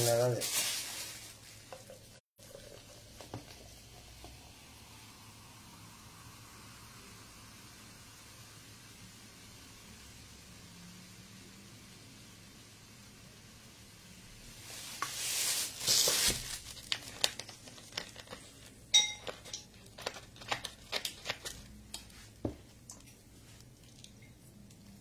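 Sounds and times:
wrapping crinkling: 0:00.0 - 0:01.7, 0:14.6 - 0:22.4
ringing clink: 0:19.0 - 0:19.6
tableware clicks and knocks: 0:19.0 - 0:19.8.

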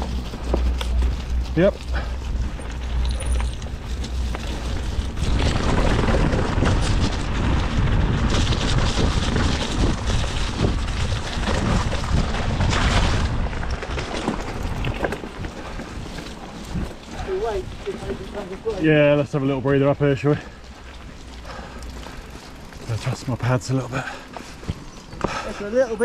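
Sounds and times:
wind rumbling on microphone: 0:00.0 - 0:19.7
bike rattling: 0:00.0 - 0:26.0
bike tyres crunching over stones: 0:00.0 - 0:26.0.

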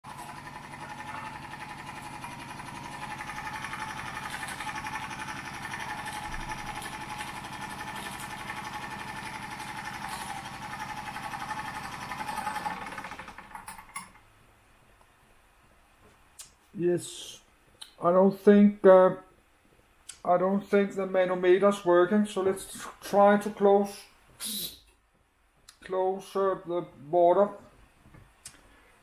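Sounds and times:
flywheel rattling: 0:00.1 - 0:14.2.

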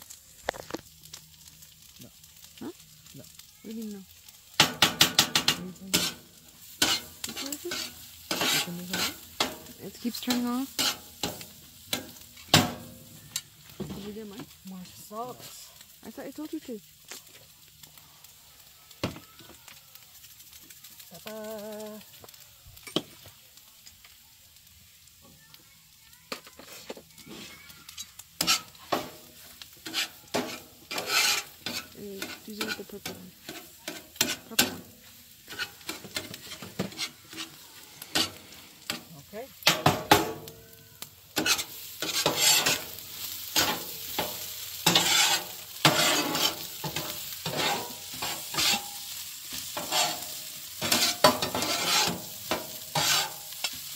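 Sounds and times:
food sizzling in a pan: 0:00.0 - 0:53.9
utensil scraping a pan: 0:04.6 - 0:14.2, 0:26.3 - 0:40.5, 0:41.4 - 0:53.9.

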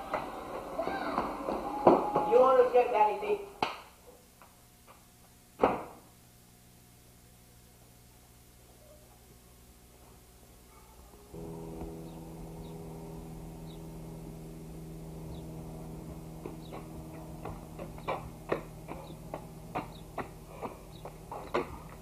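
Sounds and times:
steady hum with several pitches: 0:00.0 - 0:22.0
footsteps on concrete: 0:16.4 - 0:22.0.

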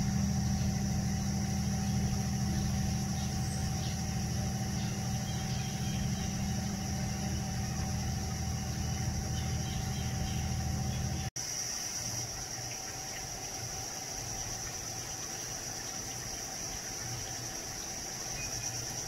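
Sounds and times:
thin high steady tone: 0:00.0 - 0:11.3
low machine hum: 0:00.0 - 0:19.0.

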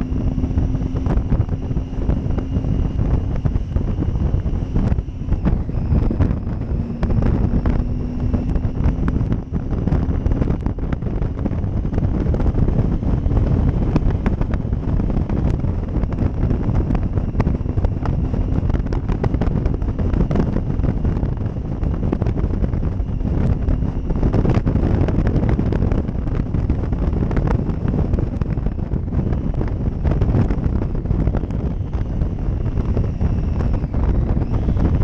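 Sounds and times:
motorcycle engine cruising: 0:00.0 - 0:35.0
wind buffeting microphone: 0:00.0 - 0:35.0.

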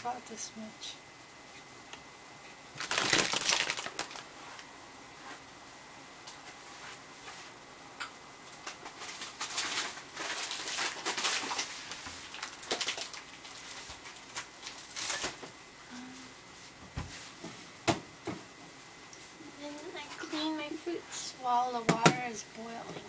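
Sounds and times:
food preparation rustling and knocks: 0:16.8 - 0:18.5.

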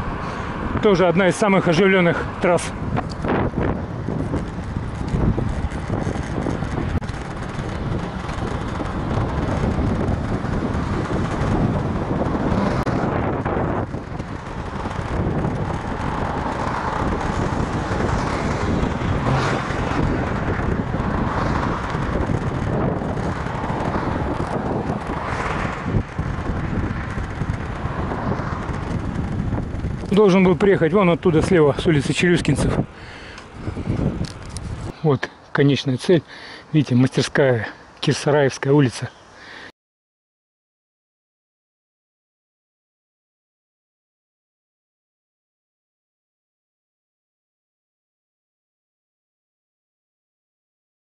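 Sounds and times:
wind rushing over microphone: 0:00.0 - 0:38.0
car traffic passing: 0:00.0 - 0:38.3.

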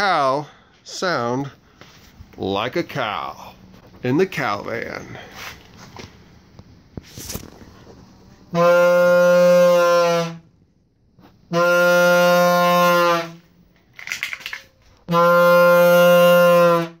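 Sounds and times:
cow horn blasts: 0:08.5 - 0:10.5, 0:11.5 - 0:13.5, 0:15.0 - 0:17.0.

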